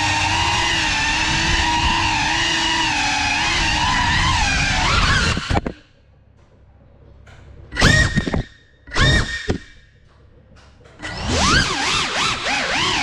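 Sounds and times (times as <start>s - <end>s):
drone motors whining: 0.0s - 5.9s, 7.7s - 9.8s, 11.0s - 13.0s.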